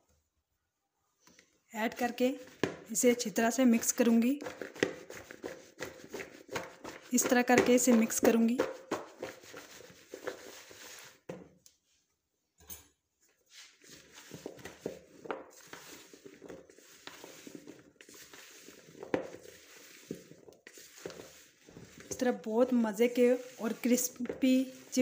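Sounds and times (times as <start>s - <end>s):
spatula scraping in bowl: 3.8s - 11.2s, 13.5s - 25.0s.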